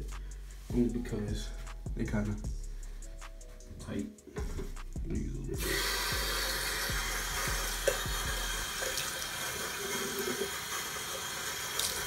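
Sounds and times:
tap running into sink: 7.4 - 8.2.

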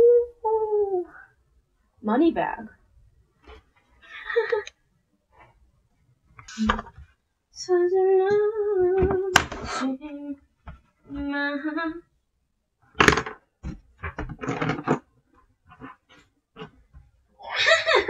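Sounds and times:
woman humming: 0.0 - 1.3, 7.9 - 10.4.

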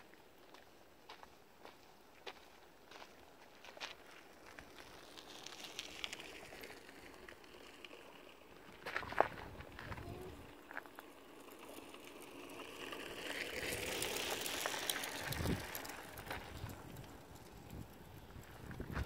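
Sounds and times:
vehicle passing by: 11.2 - 18.0.

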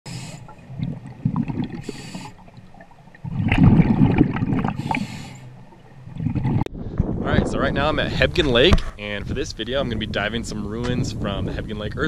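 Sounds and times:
bubbling exhalation underwater: 0.5 - 5.3, 6.1 - 6.7
regulator inhalation hiss: 1.8 - 2.4.

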